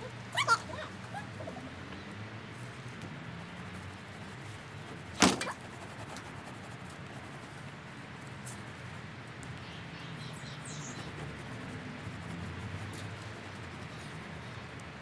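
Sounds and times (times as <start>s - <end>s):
sharp knock: 5.2s - 5.5s
high bird chirp: 9.6s - 11.2s.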